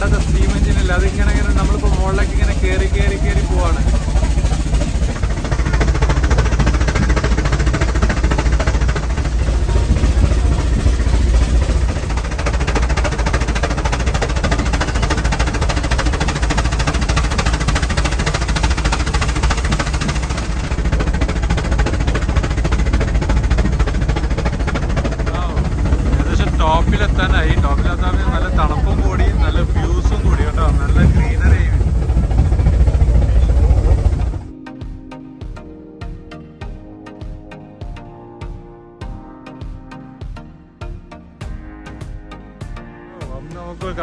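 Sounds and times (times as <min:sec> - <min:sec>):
steam locomotive chuffing: 0:00.0 - 0:34.5
heavy low rumble: 0:00.0 - 0:34.6.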